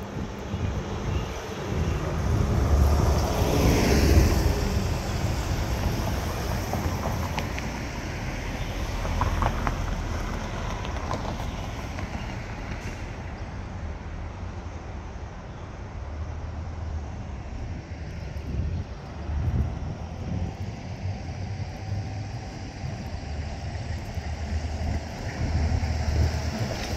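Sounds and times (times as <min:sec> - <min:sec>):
bus passing close by: 0:00.0 - 0:26.9
street traffic noise: 0:00.0 - 0:26.9.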